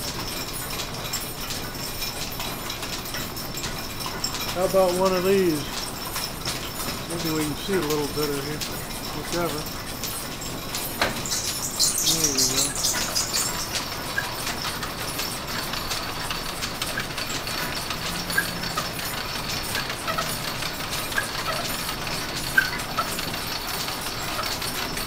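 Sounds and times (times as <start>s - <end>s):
belt and pulleys whirring: 0.0s - 25.0s
lathe belt rushing burst: 6.8s - 25.0s.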